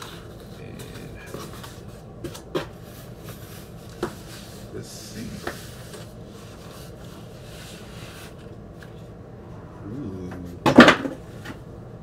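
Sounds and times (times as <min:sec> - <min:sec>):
cardboard and paper rustling: 0:00.0 - 0:09.1.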